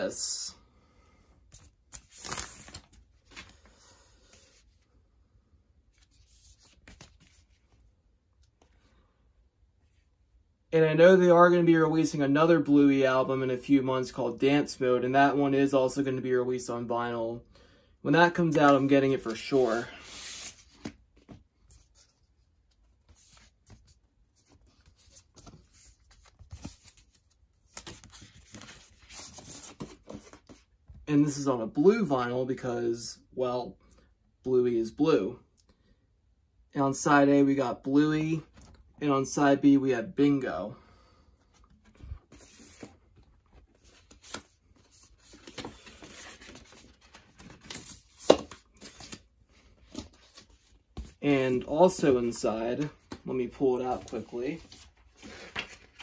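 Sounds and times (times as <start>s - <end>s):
record sleeve rustling and scraping: 6.0s - 8.8s, 18.3s - 31.0s, 41.4s - 56.0s
paper sliding against card: 18.6s - 21.0s, 41.8s - 43.0s.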